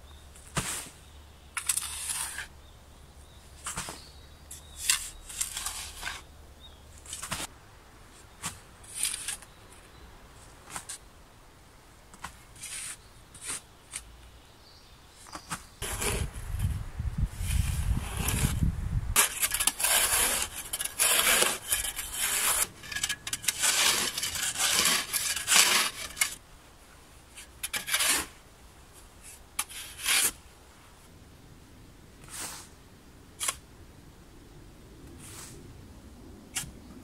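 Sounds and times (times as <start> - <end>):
shovel scraping sandy soil: 0.4 - 2.6, 3.6 - 6.3, 7.0 - 7.5, 8.1 - 9.6, 10.4 - 11.0, 12.1 - 14.1, 15.3 - 26.4, 27.3 - 30.5, 32.2 - 32.8, 33.4 - 33.6, 35.1 - 35.6.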